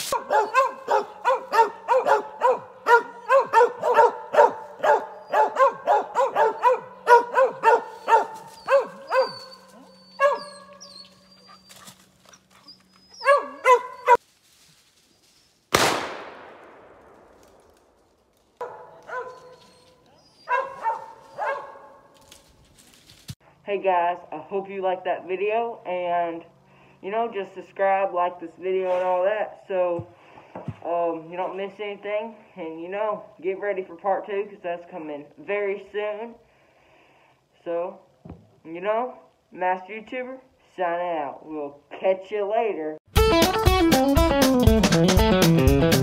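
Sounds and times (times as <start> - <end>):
dog barking: 0.1 - 9.6, 10.2 - 10.8, 13.2 - 14.2, 18.6 - 19.8, 20.4 - 22.1
gunshot with echo: 15.7 - 17.5.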